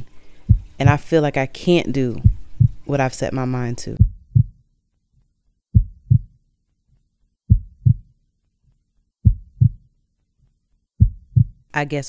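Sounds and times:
heartbeat thumps: 0:00.4 - 0:01.1, 0:02.1 - 0:02.9, 0:04.0 - 0:04.6, 0:05.7 - 0:06.4, 0:07.5 - 0:08.1, 0:09.2 - 0:09.9, 0:11.0 - 0:11.7.

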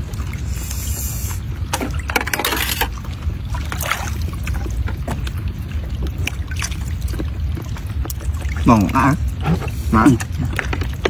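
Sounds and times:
water sloshing and splashing: 0:00.0 - 0:11.0.

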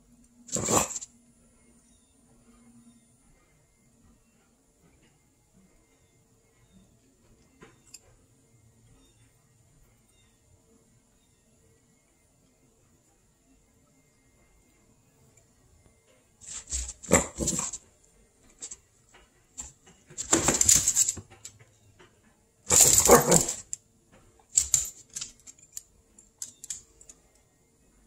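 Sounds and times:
small dog barking: 0:22.7 - 0:23.6.

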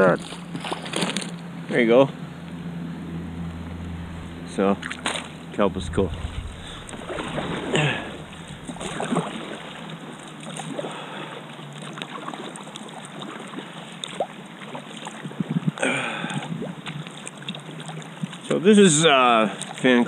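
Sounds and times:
short pitched sound: 0:03.0 - 0:09.3.

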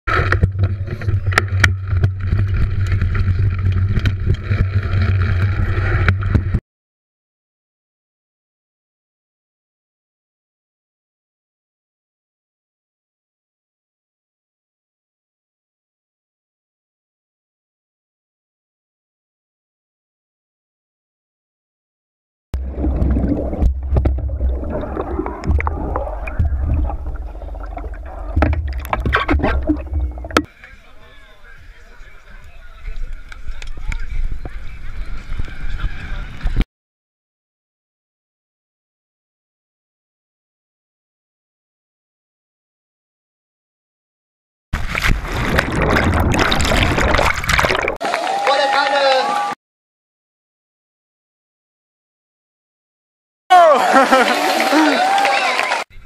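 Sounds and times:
underwater churning rumble: 0:00.1 - 0:06.6, 0:22.6 - 0:30.5, 0:44.8 - 0:48.0
bubbles: 0:22.6 - 0:30.5, 0:44.8 - 0:48.0
wind rumble: 0:22.6 - 0:30.5.

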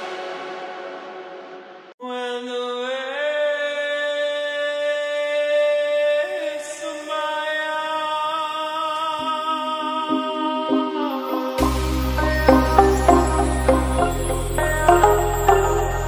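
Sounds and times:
chant-like background music: 0:09.2 - 0:16.0.

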